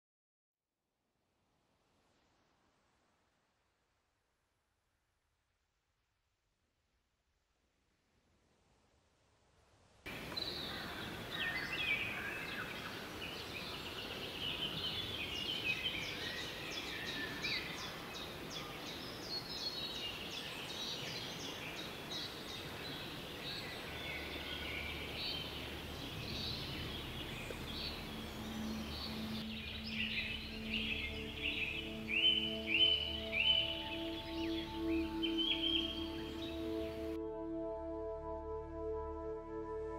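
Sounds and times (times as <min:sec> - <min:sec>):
birds chirping and calling: 0:10.3 - 0:37.2
soft music with held tones: 0:24.2 - 0:39.9.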